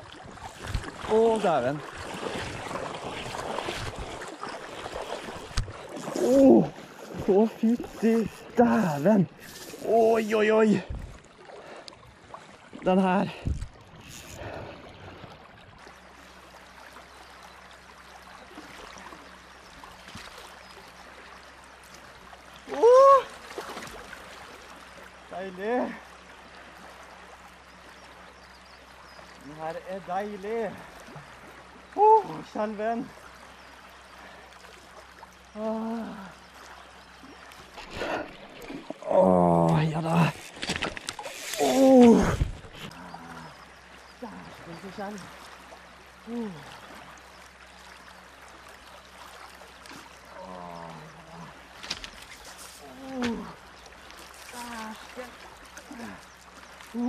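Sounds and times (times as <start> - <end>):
flowing river water: 0.0 - 57.0
man humming: 6.2 - 6.8, 22.7 - 23.3, 35.6 - 36.4, 41.6 - 43.6, 46.2 - 46.8, 50.4 - 51.6
river water rushing: 28.8 - 57.0.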